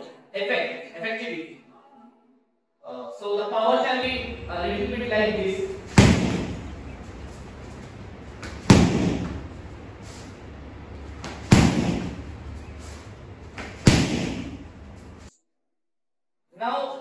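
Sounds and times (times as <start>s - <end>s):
kicks slapping a kick shield: 5.9s - 6.7s, 8.4s - 9.6s, 11.2s - 12.3s, 13.6s - 14.6s.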